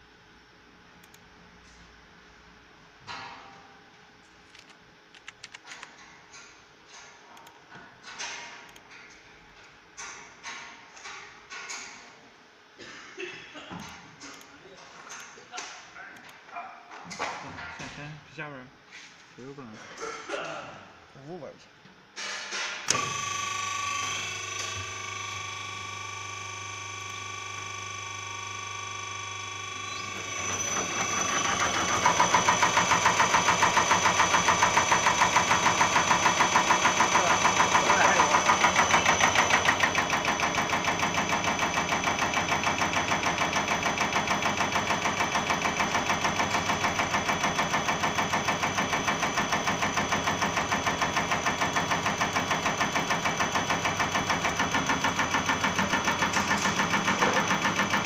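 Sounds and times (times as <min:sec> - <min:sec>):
injector test bench clatter: 0:22.2 - 0:58.0.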